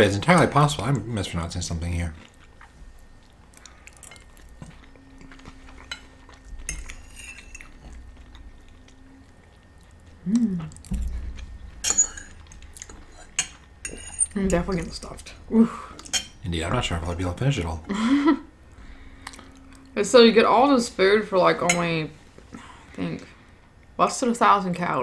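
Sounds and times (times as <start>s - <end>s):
quiet chewing: 2.1s - 16.3s, 18.6s - 20.0s
forks scraping and clinking on plates: 3.9s - 8.0s, 11.8s - 15.3s, 16.0s - 17.2s.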